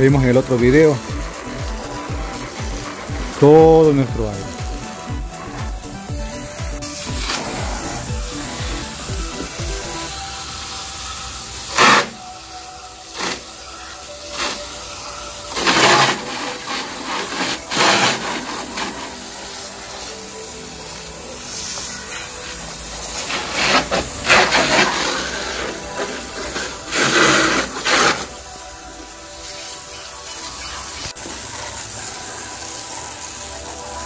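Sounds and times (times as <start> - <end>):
hose spraying water on metal: 0.0 - 34.0.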